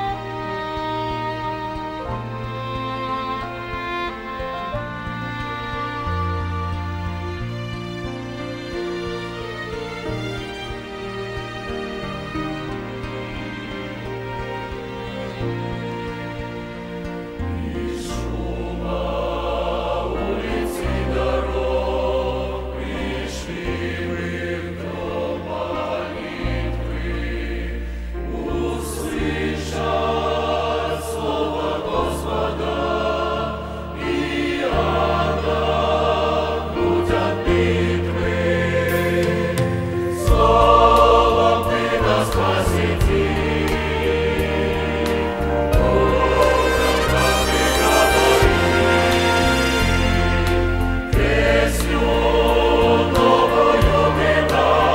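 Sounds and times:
choir singing a hymn: 0.0s - 54.9s
low bass notes: 17.1s - 54.9s.

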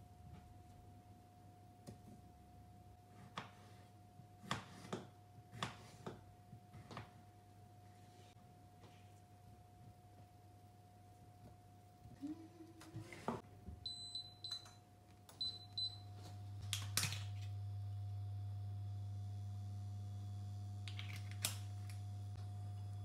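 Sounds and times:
low electrical hum: 0.0s - 23.0s
hob touch control beeps: 13.9s - 14.8s, 15.4s - 16.0s.

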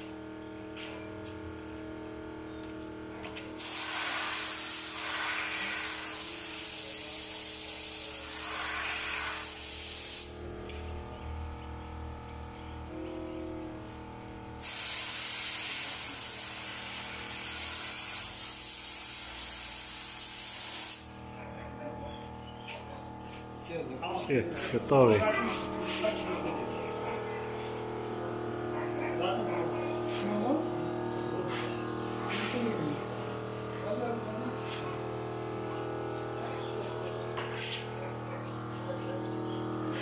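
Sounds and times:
paint spray gun hissing: 3.6s - 10.4s, 14.6s - 21.1s.

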